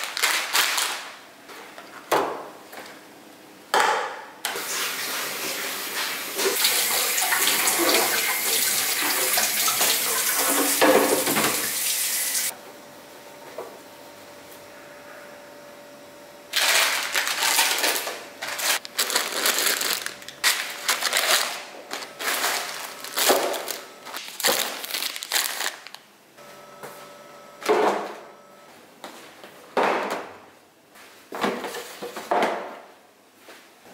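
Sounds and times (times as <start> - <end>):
plastic food packets rustling: 0.0 - 1.3, 16.6 - 26.1.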